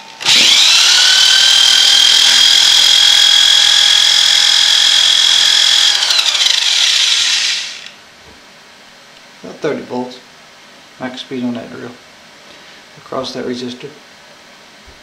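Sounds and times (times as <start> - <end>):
electric drill whining: 0.0 - 8.0.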